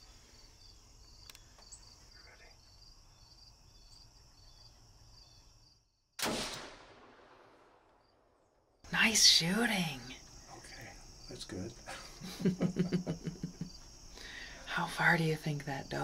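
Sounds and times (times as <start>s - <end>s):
insects chirping: 0.0s - 16.0s
gunshot: 6.2s - 8.4s.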